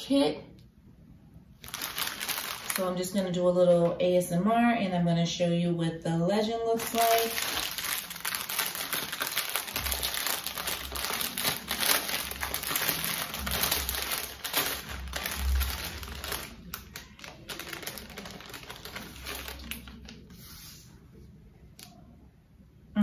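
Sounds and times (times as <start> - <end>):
plastic packaging crinkling: 1.6 - 3.4, 6.7 - 20.5.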